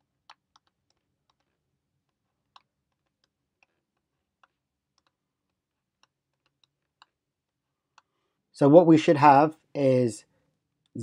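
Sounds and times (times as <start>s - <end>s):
stylus tapping on tablet screen: 0.0s - 8.3s.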